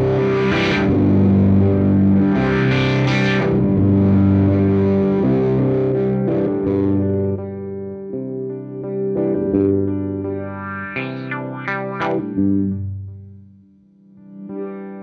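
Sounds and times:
distorted electric guitar chords: 0.0 - 15.0.

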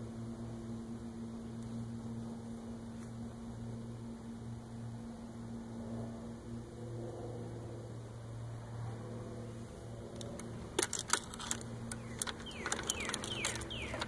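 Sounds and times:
low steady hum: 0.0 - 14.0
sharp clicks and rattles: 10.1 - 14.0.

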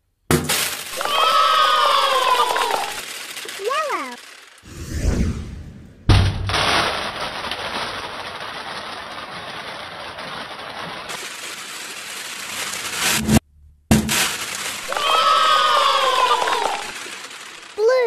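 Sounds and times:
beads bouncing on hard surface: 0.5 - 4.6, 13.9 - 18.0.

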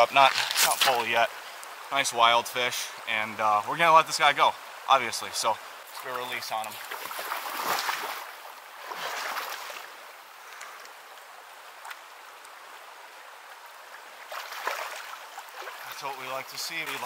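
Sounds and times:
river current rushing: 0.0 - 17.0
boots splashing through water: 6.7 - 9.9, 14.3 - 16.1.

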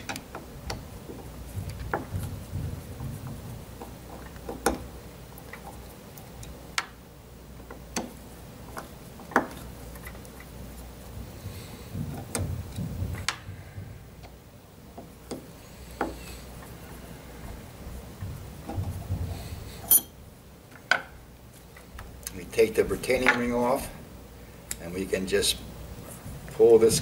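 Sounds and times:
low rumbles of handled part: 0.0 - 6.8, 7.6 - 20.9.

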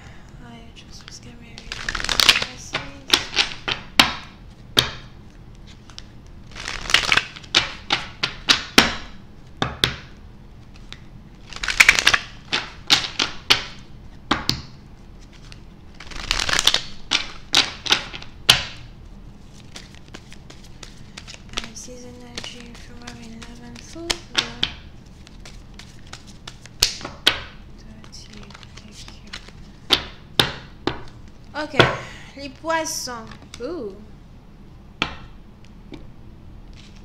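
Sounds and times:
cards sliding rustle: 0.9 - 3.8, 4.5 - 8.6, 10.6 - 13.8, 15.0 - 18.3, 19.3 - 27.2, 27.9 - 30.1, 36.7 - 37.0
cards snapping against deck: 1.6 - 5.0, 5.9 - 9.1, 10.8 - 13.8, 15.4 - 18.8, 19.6 - 31.0.

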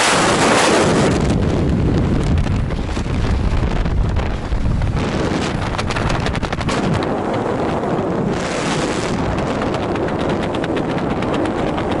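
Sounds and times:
wind buffeting microphone: 0.0 - 12.0
parachute fluttering: 2.3 - 12.0.

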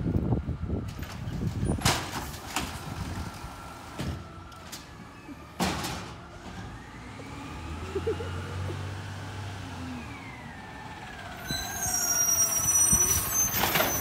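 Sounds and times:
garbage truck engine revving: 2.3 - 11.4.

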